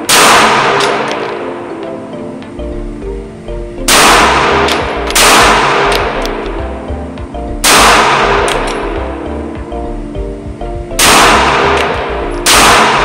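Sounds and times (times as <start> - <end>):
pistol shots with echo: 0.0 - 1.5, 3.9 - 6.5, 7.6 - 8.8, 11.0 - 13.0
background music: 0.0 - 13.0.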